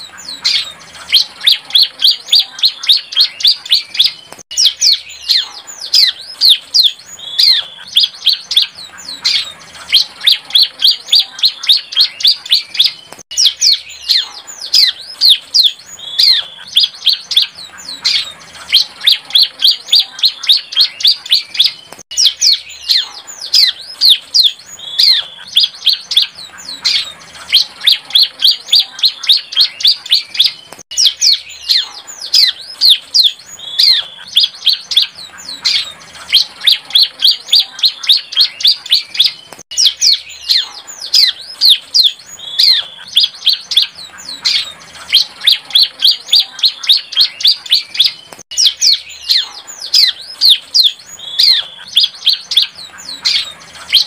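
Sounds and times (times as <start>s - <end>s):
bird singing high sharp chirps: 0.0s - 54.0s.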